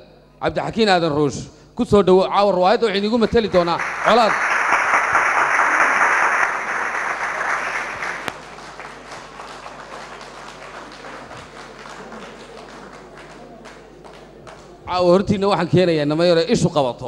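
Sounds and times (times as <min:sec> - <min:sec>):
audience applauding: 0:03.0 - 0:14.8.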